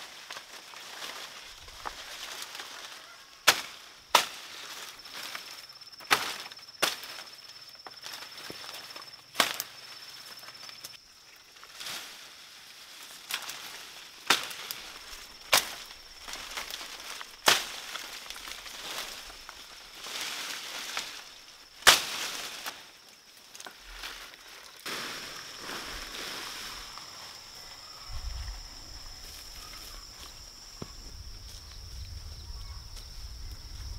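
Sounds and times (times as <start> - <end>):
leaves rustling: 0.0 - 33.9
grass stalks snapping: 0.1 - 11.0, 13.0 - 25.2.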